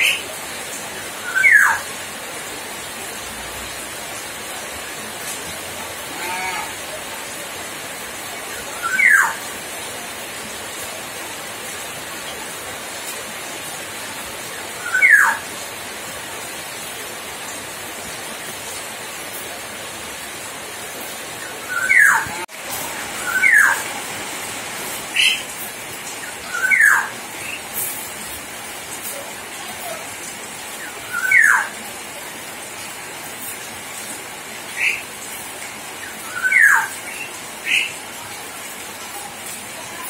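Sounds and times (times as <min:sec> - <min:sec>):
steady hiss: 0:00.0 - 0:40.0
bird whistling: 0:01.3 - 0:01.8, 0:08.8 - 0:09.4, 0:14.8 - 0:15.4, 0:23.2 - 0:23.8, 0:26.5 - 0:27.1, 0:36.3 - 0:36.9.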